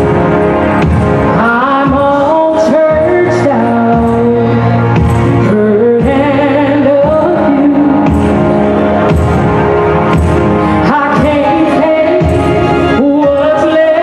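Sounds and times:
band accompaniment: 0:00.0 - 0:14.0
woman singing into a microphone: 0:01.2 - 0:08.8, 0:10.5 - 0:14.0.

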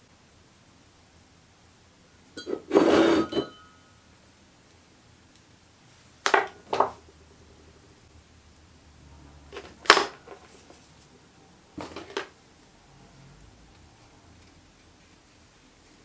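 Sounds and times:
metal rod clinking in ceramic mug: 0:02.4 - 0:03.7.

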